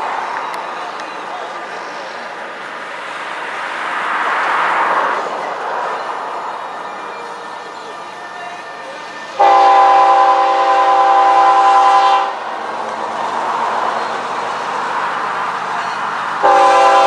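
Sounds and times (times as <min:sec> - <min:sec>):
locomotives rumbling past: 0:00.0 - 0:17.0
locomotive air horn blast: 0:09.4 - 0:12.5, 0:15.8 - 0:17.0.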